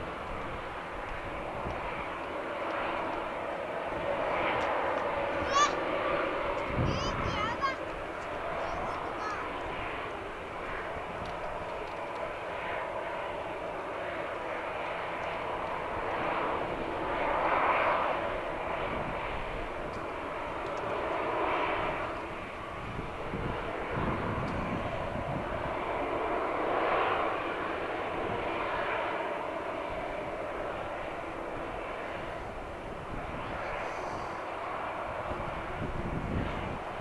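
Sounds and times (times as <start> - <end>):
jet engines idling: 0.0 - 37.0.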